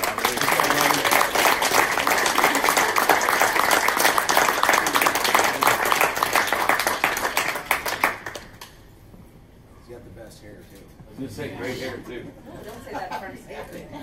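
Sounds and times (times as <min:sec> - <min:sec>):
crowd applauding: 0:00.0 - 0:08.7.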